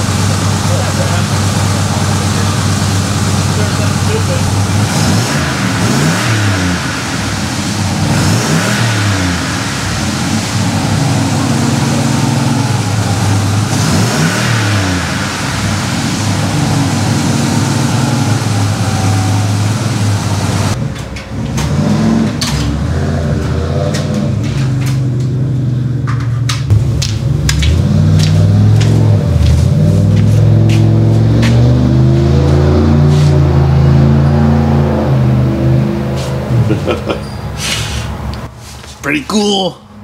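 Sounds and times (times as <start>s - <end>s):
truck engine revving and idling: 0.0s - 39.2s.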